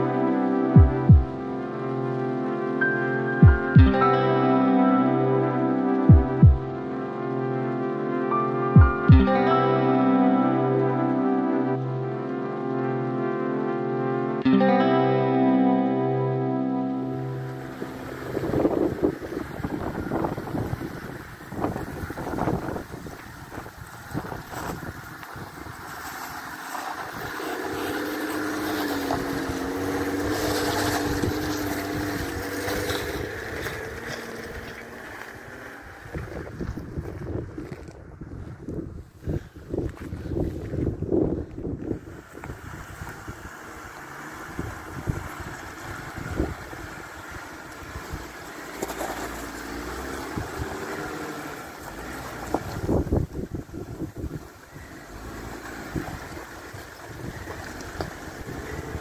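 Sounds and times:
vehicle engine working under load: 17.2 - 59.0
wind buffeting microphone: 17.3 - 59.0.

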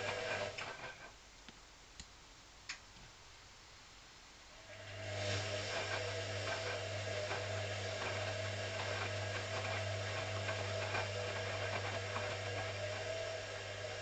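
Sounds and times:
washing machine motor hum: 0.0 - 1.1, 4.6 - 14.0.

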